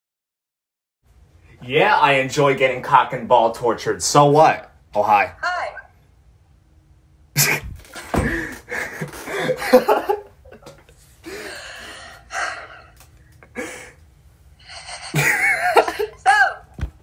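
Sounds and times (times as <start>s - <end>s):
woman laughing: 7.4s - 11.5s, 14.6s - 16.7s
gasping wheezing breaths: 11.2s - 14.0s, 14.6s - 15.2s.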